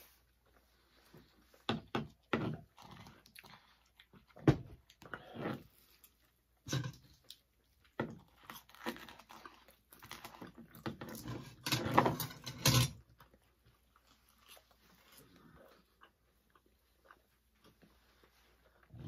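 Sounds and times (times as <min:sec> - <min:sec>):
chewing and mouth noise: 0:02.6 - 0:10.9, 0:13.0 - 0:19.0.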